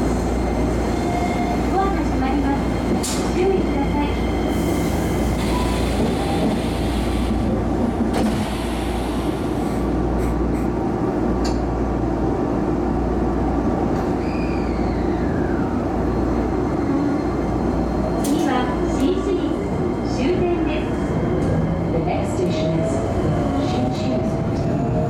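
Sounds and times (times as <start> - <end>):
train equipment hum: 0.0 - 14.1.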